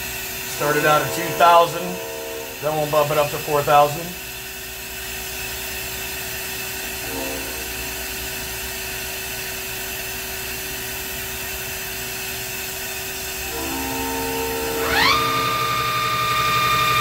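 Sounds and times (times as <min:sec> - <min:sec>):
machine hum with whine: 0:00.0 - 0:17.0
spindle starting up: 0:00.4 - 0:04.2, 0:13.4 - 0:17.0.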